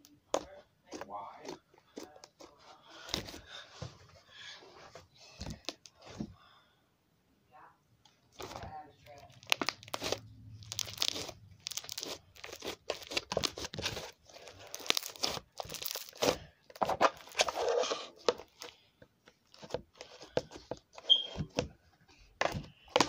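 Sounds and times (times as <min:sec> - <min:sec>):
crinkling and crackling: 0:08.0 - 0:23.0.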